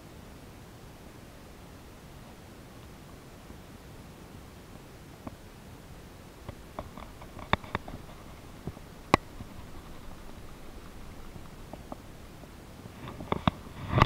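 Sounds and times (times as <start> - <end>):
steady low hiss: 0.0 - 14.0
fishing gear clicks and taps: 6.5 - 12.4.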